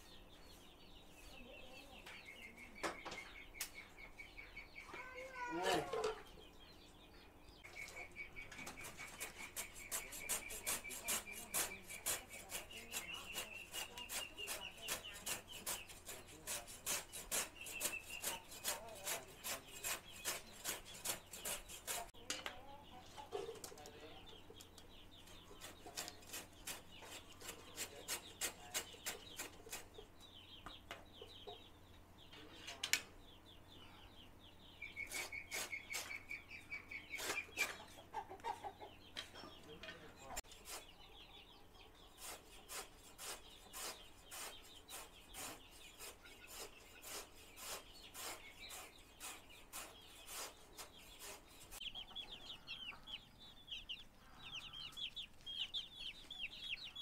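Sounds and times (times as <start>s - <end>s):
chickens clucking: 0.0s - 57.0s
knife chopping plant stalks: 8.7s - 22.1s, 25.6s - 29.9s.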